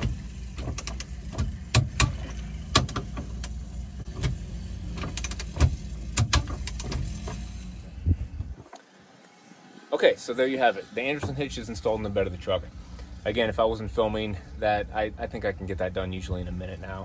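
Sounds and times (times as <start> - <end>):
low rumble: 7.5 - 8.6.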